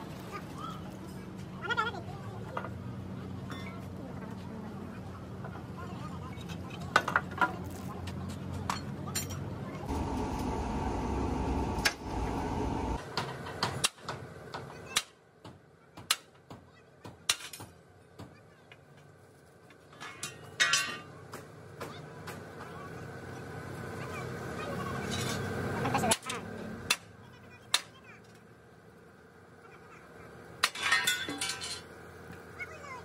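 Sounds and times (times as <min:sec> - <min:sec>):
low machine noise: 0:00.0 - 0:16.0, 0:17.3 - 0:33.0
tools knocking and clinking: 0:20.0 - 0:21.1, 0:30.6 - 0:31.9.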